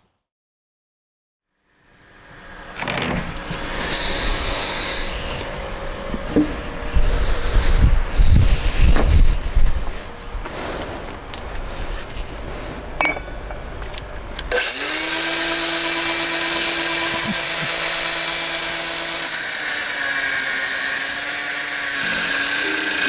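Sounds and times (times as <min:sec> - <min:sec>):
hiss of cutting: 0:03.6 - 0:05.5, 0:19.2 - 0:23.0
power tool motor whine: 0:14.5 - 0:23.0.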